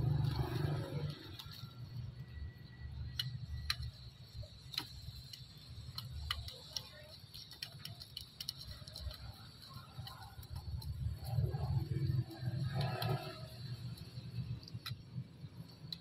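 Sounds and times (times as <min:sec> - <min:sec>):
low rumble: 0:00.0 - 0:03.6.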